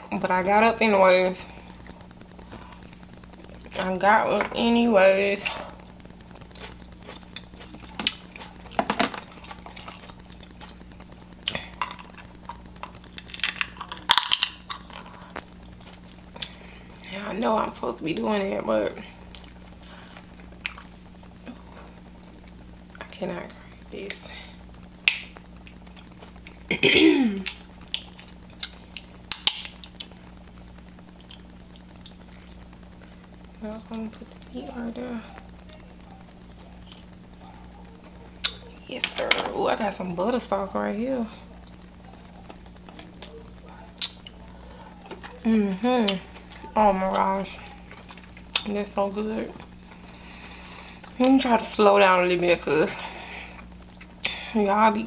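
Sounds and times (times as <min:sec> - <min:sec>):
shellfish shells cracking: 0:06.2 - 0:17.0, 0:25.0 - 0:26.6, 0:27.4 - 0:30.2, 0:37.9 - 0:39.3, 0:43.9 - 0:48.8.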